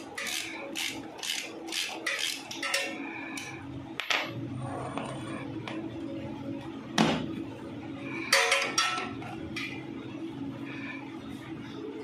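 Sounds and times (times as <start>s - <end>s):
steady low hum: 0.0s - 12.0s
metal spanner clinking: 0.2s - 3.0s.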